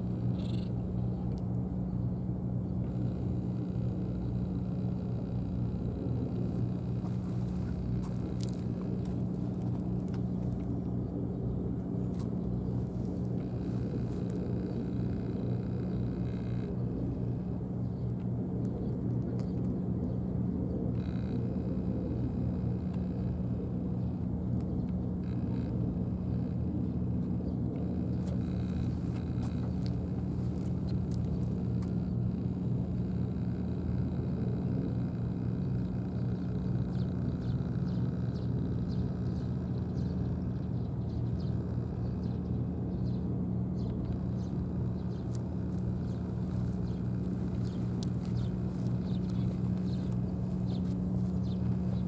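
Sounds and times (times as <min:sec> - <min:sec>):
low mechanical motor hum: 0:00.0 - 0:52.0
faint ticks: 0:27.2 - 0:40.7, 0:43.8 - 0:52.0.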